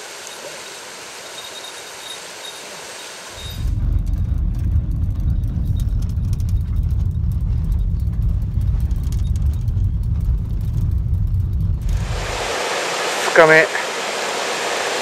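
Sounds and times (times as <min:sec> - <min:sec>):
tyres rumbling over rough ground: 0:03.2 - 0:12.6
faint light rattles: 0:03.4 - 0:12.0.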